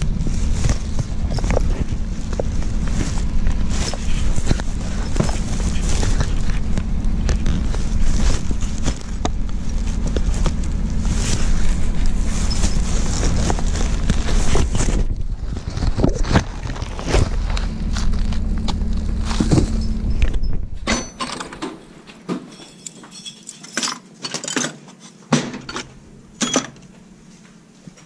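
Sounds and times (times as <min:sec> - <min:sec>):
plastic trash bag rustling: 0:00.0 - 0:20.4
steady low hum: 0:00.0 - 0:23.7, 0:25.4 - 0:28.0.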